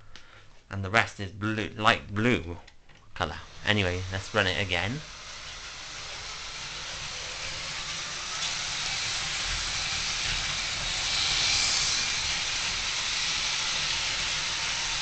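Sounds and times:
model train running on track: 0:04.1 - 0:15.0.

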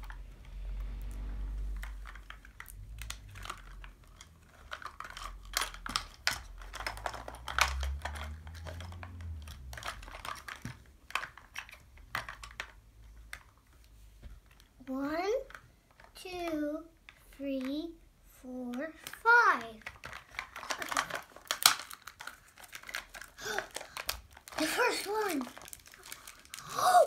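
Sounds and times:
paper wrapping crinkling and tearing: 0:00.0 - 0:10.6, 0:19.9 - 0:27.0.

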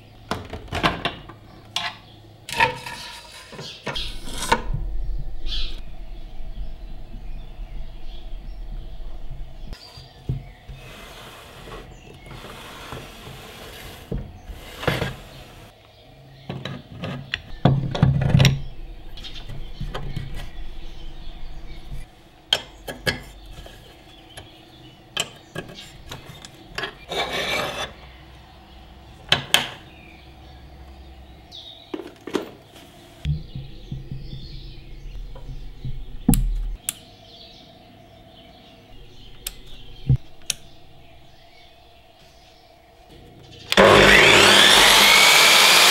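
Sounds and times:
faint steady hum: 0:04.0 - 0:12.4
clicks and knocks on saw fittings: 0:25.2 - 0:26.2.

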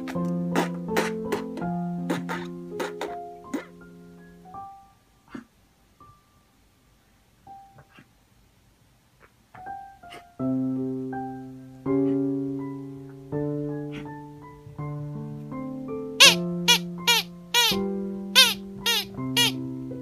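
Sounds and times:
piano music: 0:00.0 - 0:05.1, 0:09.6 - 0:20.0.

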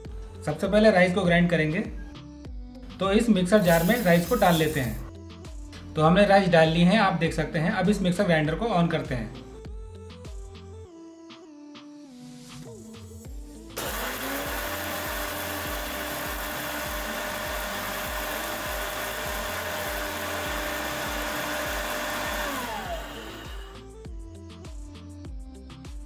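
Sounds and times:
mixer grinder grinding rice: 0:03.6 - 0:05.1, 0:13.8 - 0:24.0.

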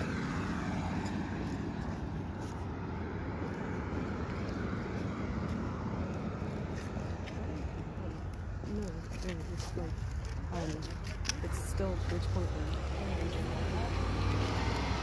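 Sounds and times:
motor vehicle rumbling: 0:00.0 - 0:15.0.

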